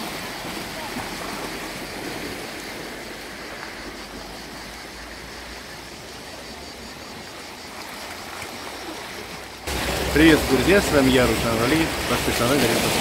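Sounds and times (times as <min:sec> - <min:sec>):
waves washing over rocks: 0:00.0 - 0:04.7, 0:07.8 - 0:13.0.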